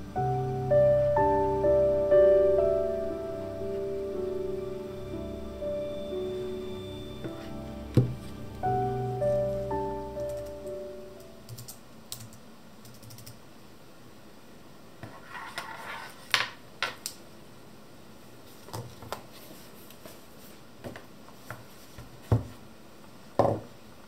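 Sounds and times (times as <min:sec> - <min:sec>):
piano music: 0:00.0 - 0:11.7
keyboard keys clicking: 0:10.2 - 0:13.4.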